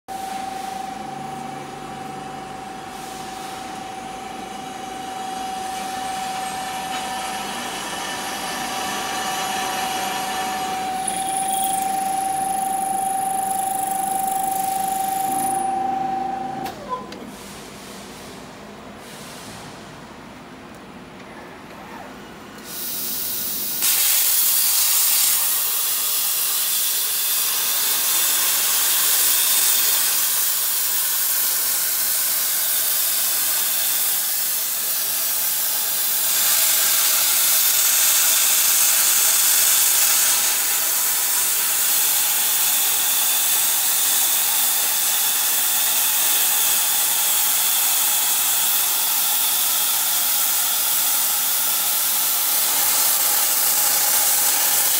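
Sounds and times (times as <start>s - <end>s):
plasma arc hissing: 22.7s - 32.1s.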